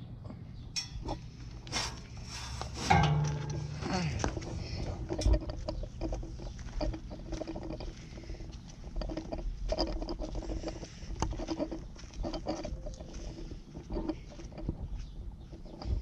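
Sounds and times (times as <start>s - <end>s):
footsteps on driveway: 2.5s - 15.2s.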